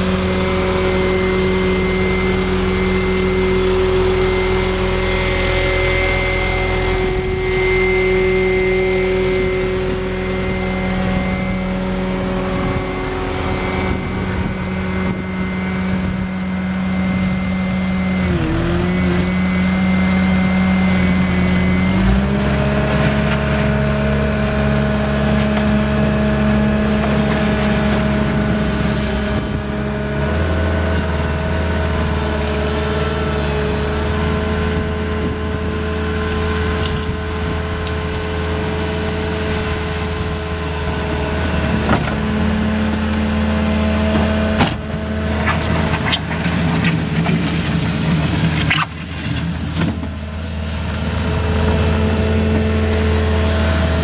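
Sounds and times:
diesel engine running: 0.0s - 54.0s
gravel dumped onto pile: 36.3s - 43.0s.

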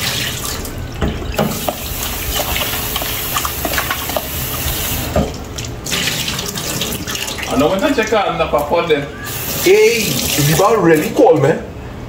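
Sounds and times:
tap running into sink: 1.0s - 7.0s.

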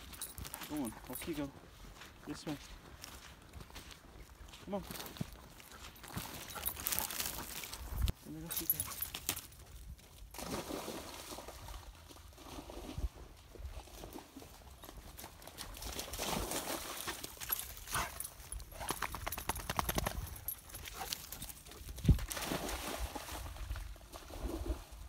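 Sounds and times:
dog paws splashing in water: 0.0s - 24.9s.

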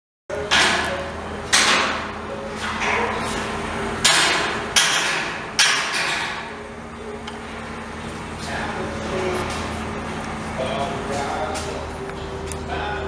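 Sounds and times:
steady low hum: 0.3s - 13.0s
sharp knocks: 4.0s - 6.5s.

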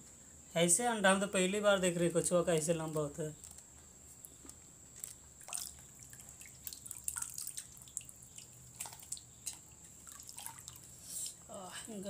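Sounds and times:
water splashing in a pot: 5.1s - 10.9s.

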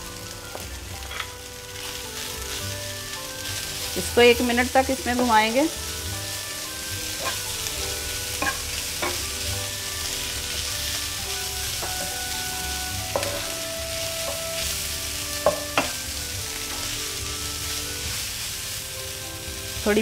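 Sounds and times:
food sizzling in oil: 0.0s - 20.0s
spatula stirring food: 0.4s - 19.9s
spatula knocking against pan: 8.4s - 9.2s, 13.1s - 13.5s, 15.4s - 16.0s.

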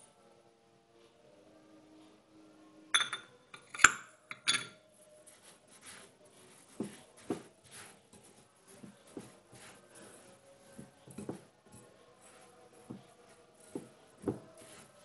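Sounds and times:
whisk stirring sugar: 5.2s - 15.0s.

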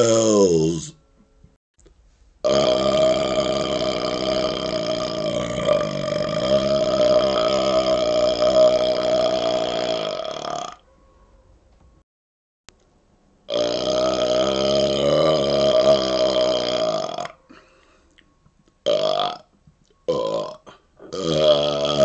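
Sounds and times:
man burping: 0.0s - 0.9s, 2.4s - 10.8s, 13.5s - 17.7s, 18.8s - 19.5s, 20.1s - 22.0s.

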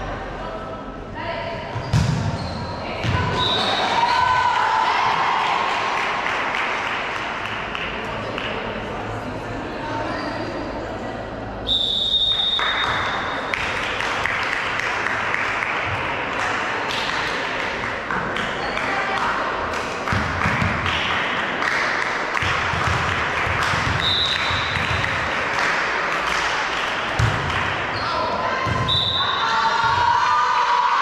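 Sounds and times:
voices of players and spectators: 0.0s - 31.0s
ball struck and bouncing: 1.7s - 2.4s, 27.2s - 27.6s
referee's whistle: 11.7s - 13.4s, 24.0s - 24.7s, 28.8s - 29.4s.

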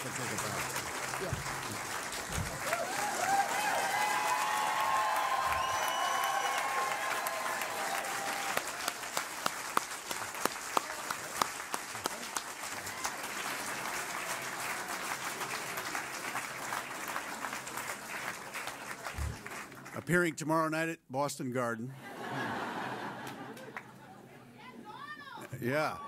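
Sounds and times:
nearby sharp claps: 0.0s - 20.0s
audience applauding: 0.0s - 20.2s, 22.2s - 24.2s.

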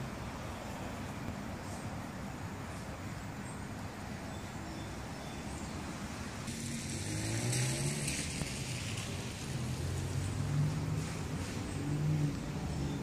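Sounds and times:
traffic hum: 0.0s - 13.0s
tyre road hiss: 0.0s - 13.0s
car engine accelerating: 6.5s - 13.0s.

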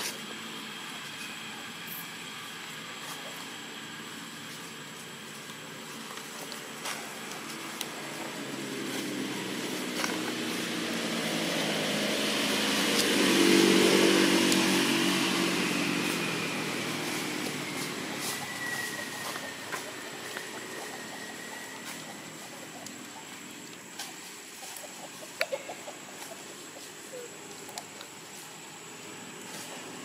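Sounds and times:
vehicle engine passing by: 6.0s - 27.6s.

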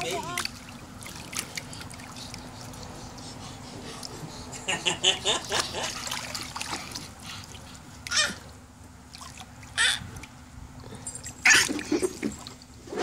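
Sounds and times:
feet splashing in water: 0.0s - 3.0s, 5.4s - 10.4s, 11.3s - 12.6s
toddler squealing: 8.1s - 8.4s, 9.8s - 10.0s.

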